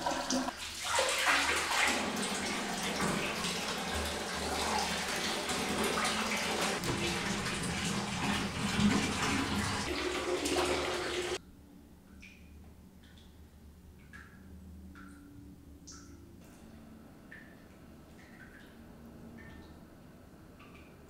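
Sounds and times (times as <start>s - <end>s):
water running from a tap into a tub: 0.0s - 11.4s.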